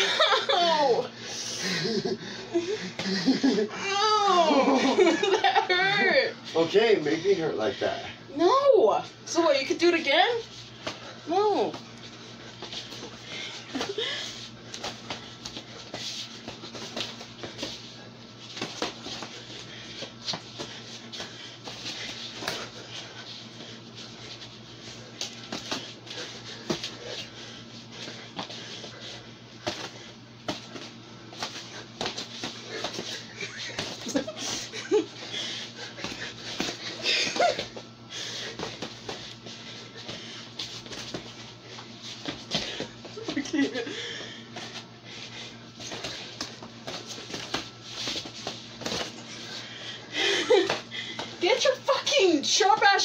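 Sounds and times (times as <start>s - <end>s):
steady low hum: 0.0s - 53.0s
person breathing: 1.1s - 3.6s, 38.0s - 38.8s, 43.8s - 46.4s, 49.3s - 51.4s
shuffling footsteps: 9.7s - 53.0s
feet scuffing: 12.6s - 34.7s, 38.5s - 43.8s, 44.5s - 49.6s.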